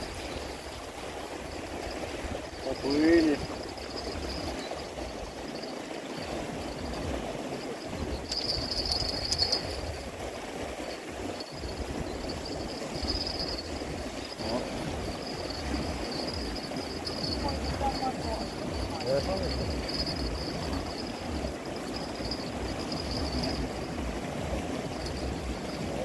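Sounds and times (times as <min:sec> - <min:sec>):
steady rushing outdoor noise: 0:00.0 - 0:26.0
low uneven rumble: 0:10.8 - 0:26.0
high thin trill: 0:11.4 - 0:23.8.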